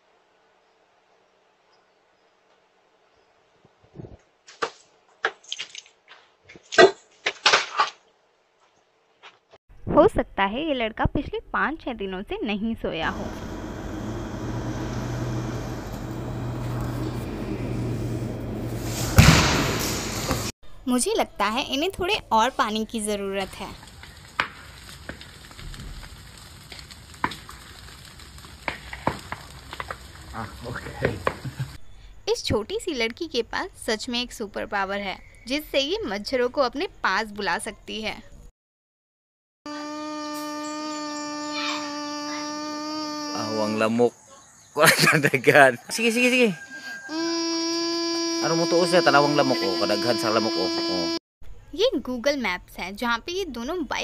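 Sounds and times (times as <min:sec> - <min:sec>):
fire popping: 0:13.1 - 0:20.5, 0:22.1 - 0:31.8
grass fire crackling: 0:13.1 - 0:20.5, 0:22.1 - 0:31.8, 0:48.7 - 0:51.0
loud crash: 0:18.7 - 0:20.5.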